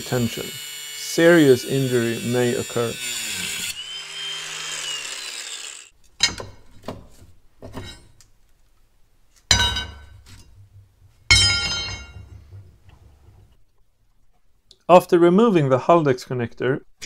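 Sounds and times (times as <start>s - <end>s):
angle grinder spinning down: 0.0s - 5.9s
ringing metal clangs: 11.3s - 12.7s.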